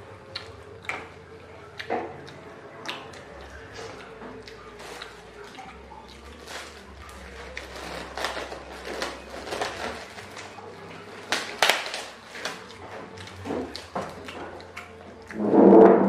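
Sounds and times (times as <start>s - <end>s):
plastic bag crinkling: 4.5s - 5.6s, 6.2s - 14.6s.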